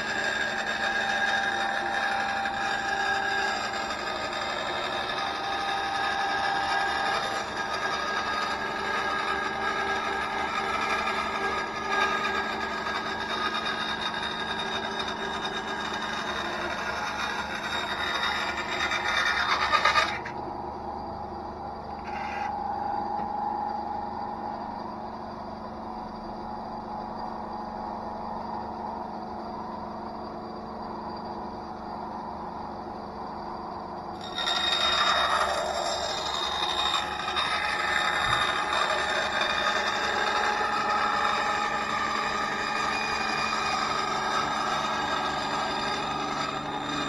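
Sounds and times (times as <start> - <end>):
saw blade cutting plywood: 0.0 - 20.4, 22.0 - 22.5, 34.2 - 47.0
bandsaw motor hum: 0.0 - 20.6, 21.9 - 22.7, 34.0 - 47.0.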